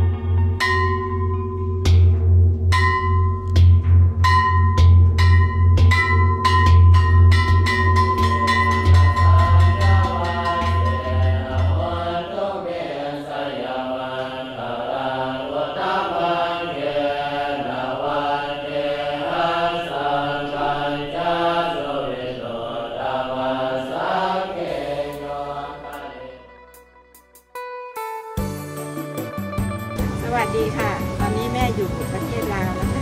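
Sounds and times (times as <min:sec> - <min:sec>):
temple gong beaten: 0:00.0 - 0:12.0, 0:30.0 - 0:33.0
monks chanting together: 0:09.8 - 0:26.4.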